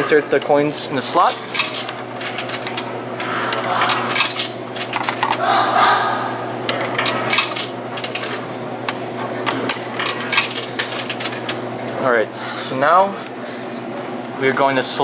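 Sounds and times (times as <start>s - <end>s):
steady low hum: 0.0s - 15.0s
coins clinking into vending machine: 1.1s - 5.4s, 6.7s - 8.6s, 9.6s - 11.7s.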